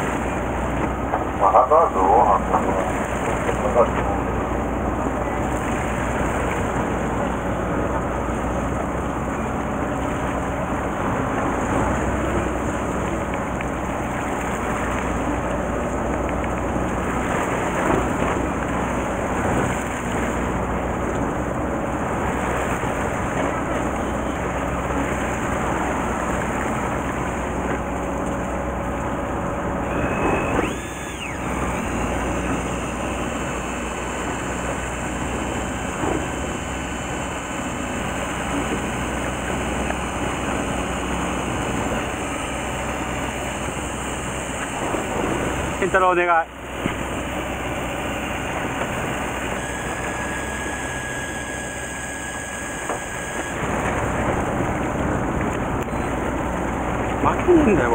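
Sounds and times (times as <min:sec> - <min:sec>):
boat engine running low: 0:00.0 - 0:57.9
water washing along hull: 0:00.0 - 0:57.9
brief whine: 0:29.8 - 0:37.8, 0:47.0 - 0:54.1, 0:55.8 - 0:56.3.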